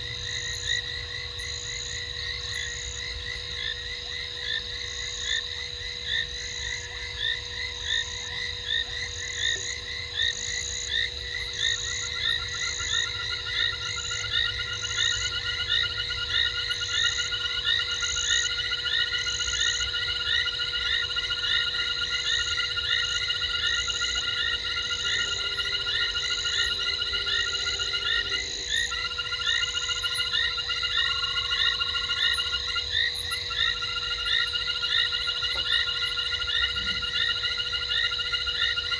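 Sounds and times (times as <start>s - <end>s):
frog pulsed trill: 0.0s - 38.9s.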